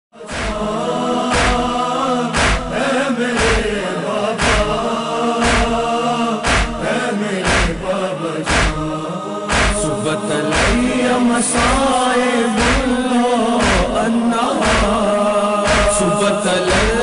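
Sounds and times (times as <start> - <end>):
chorus chanting wordless drone: 0.2 - 17.0
deep thumps: 0.3 - 0.7, 1.3 - 1.8, 2.4 - 2.8, 3.4 - 3.8, 4.4 - 4.8, 5.4 - 7.9, 8.5 - 8.9, 9.5 - 9.9, 10.5 - 11.0, 11.6 - 12.0, 12.6 - 13.0, 13.6 - 14.0, 14.6 - 15.1, 15.7 - 16.0, 16.7 - 17.0.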